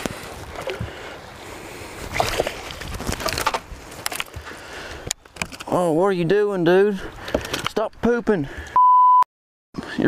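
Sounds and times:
water slapping boat hull: 0:01.7 - 0:04.6.

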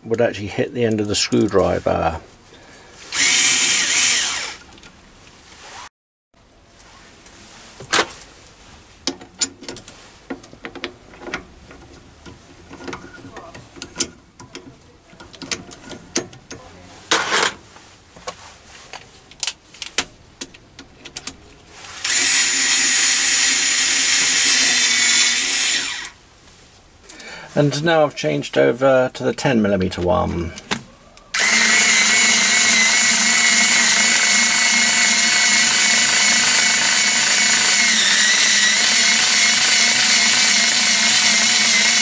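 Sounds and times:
cordless screwdriver running: 0:03.1 - 0:04.6, 0:22.0 - 0:26.2, 0:31.4 - 0:42.0.

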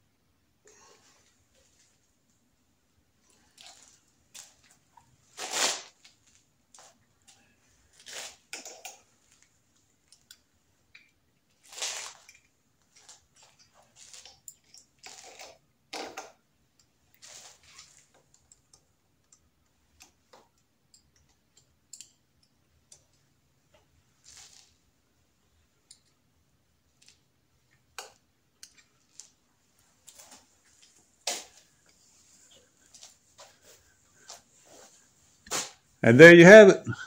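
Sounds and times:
small clicks and taps: 0:18.2 - 0:23.8.

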